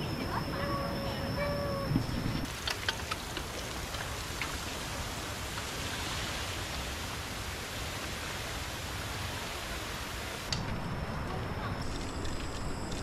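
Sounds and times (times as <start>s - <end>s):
water flowing in a stream: 2.4s - 10.7s.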